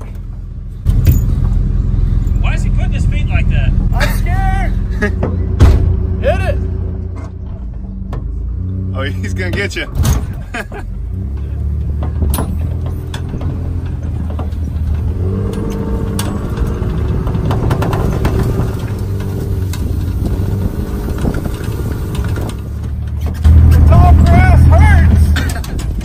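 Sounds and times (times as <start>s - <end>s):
truck engine running: 0.0s - 26.0s
knocks from bumpy ride: 5.0s - 8.6s, 9.4s - 26.0s.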